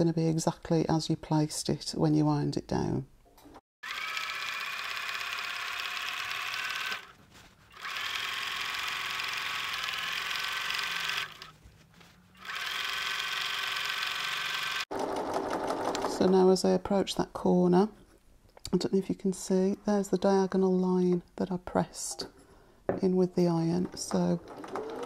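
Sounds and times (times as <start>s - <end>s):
sewing machine stitching: 3.8s - 11.5s, 12.4s - 16.4s, 24.1s - 25.0s.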